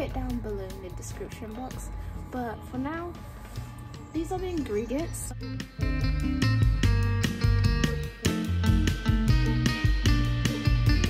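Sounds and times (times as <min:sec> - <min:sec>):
bass line: 0:00.0 - 0:11.0
plucked guitar: 0:05.4 - 0:11.0.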